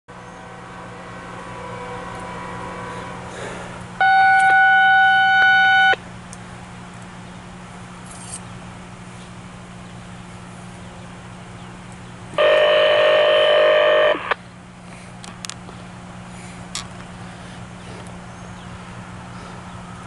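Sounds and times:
steady low hum: 0.1 - 20.0
buzzy electronic tone: 4.0 - 6.0.

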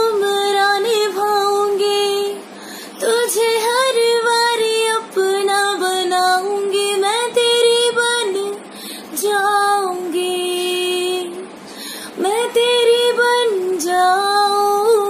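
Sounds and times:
woman singing: 0.0 - 15.0.

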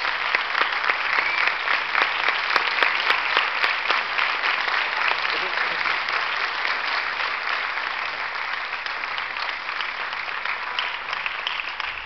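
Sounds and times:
audience applauding: 0.0 - 12.0.

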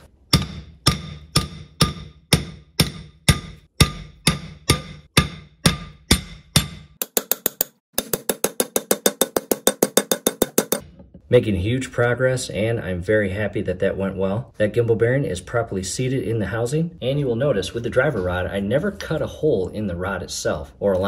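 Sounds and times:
hammer striking metal rod: 0.3 - 10.9.

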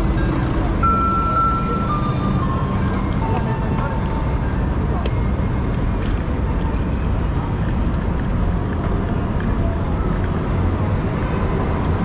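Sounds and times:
faint city street noise: 0.0 - 12.0
wind rumble on microphone: 2.8 - 12.0.

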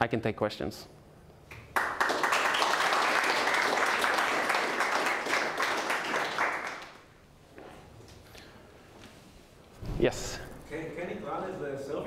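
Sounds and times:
audience applauding: 1.7 - 7.1.

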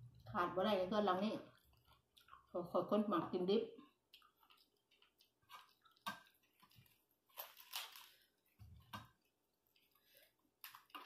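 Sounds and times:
cabbage leaf tearing: 4.4 - 9.0.

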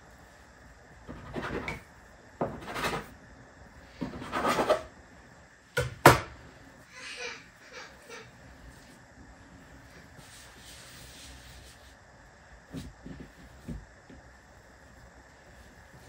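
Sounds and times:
dough being handled: 8.5 - 16.0.

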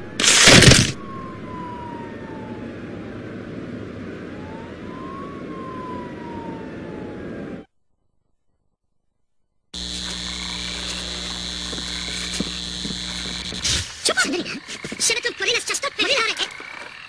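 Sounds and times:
mechanical hum with high whine: 9.8 - 16.4.

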